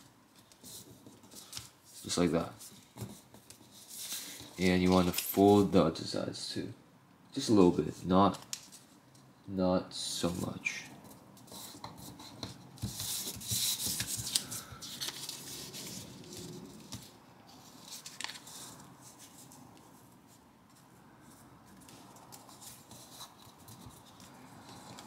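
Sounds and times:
paper rustling and crinkling: 0:10.3 - 0:25.0.

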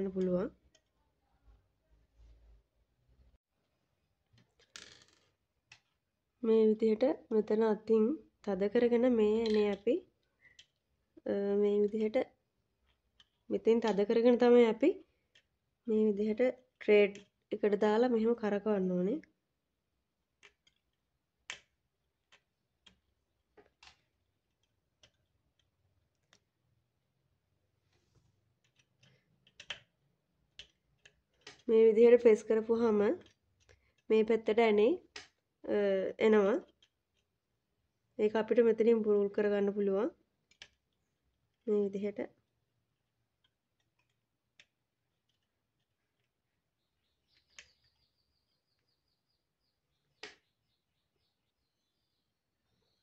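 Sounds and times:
small metal parts clicking: 0:09.3 - 0:10.9, 0:12.8 - 0:14.0, 0:15.2 - 0:15.6, 0:20.4 - 0:26.6, 0:28.5 - 0:31.7, 0:36.6 - 0:37.4, 0:40.4 - 0:41.7, 0:43.4 - 0:46.4
faint high chirping: 0:46.5 - 0:53.0.

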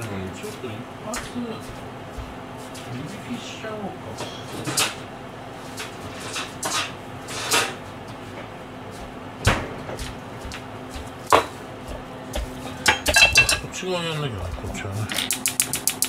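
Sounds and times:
steady low hum: 0:00.0 - 0:16.0
kitchen items knocking and clacking: 0:11.3 - 0:13.8.

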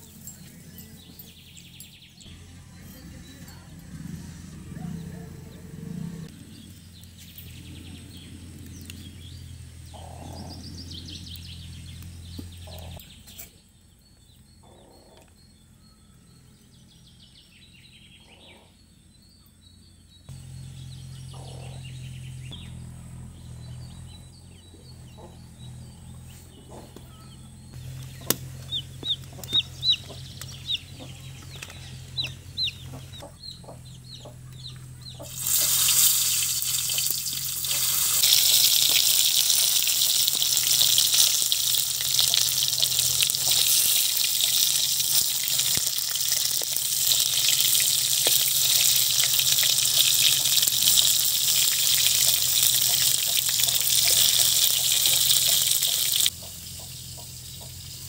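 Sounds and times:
steady low hum: 0:00.0 - 0:14.6
small birds chirping: 0:00.0 - 0:58.0
chickens clucking: 0:12.4 - 0:13.0, 0:24.7 - 0:27.1, 0:27.8 - 0:58.0.

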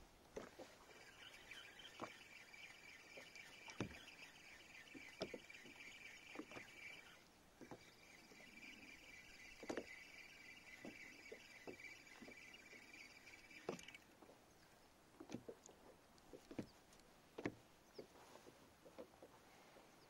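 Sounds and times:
steady high-pitched buzz: 0:00.7 - 0:14.1.

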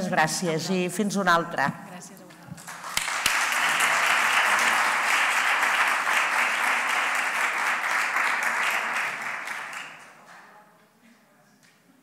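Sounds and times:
audience applauding: 0:02.6 - 0:10.5.

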